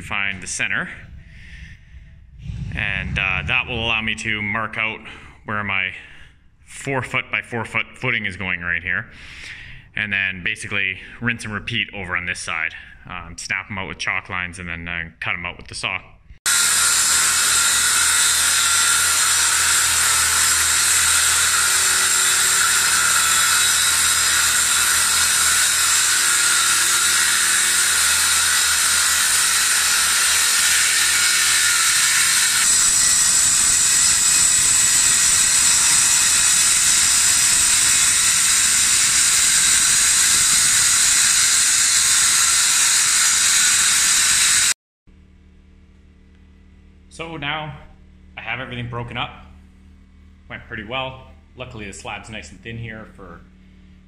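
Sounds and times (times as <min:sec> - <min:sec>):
circular saw cutting concrete: 0:00.0 - 0:05.3, 0:16.5 - 0:44.8.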